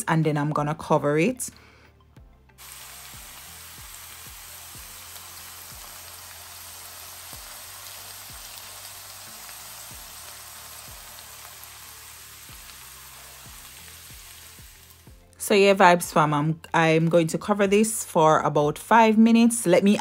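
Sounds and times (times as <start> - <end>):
faint background music with beat: 0.0 - 20.0
food sizzling in a frying pan: 2.6 - 15.2.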